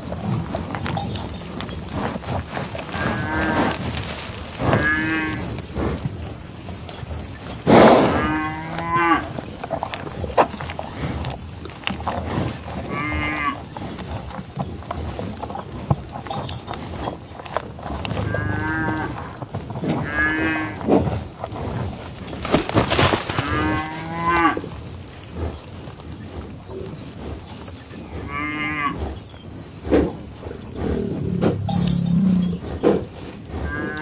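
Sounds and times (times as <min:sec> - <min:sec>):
cow mooing: 0:07.9 - 0:09.4, 0:12.9 - 0:13.6, 0:23.4 - 0:24.6, 0:28.3 - 0:29.0, 0:30.9 - 0:32.7, 0:33.7 - 0:34.0.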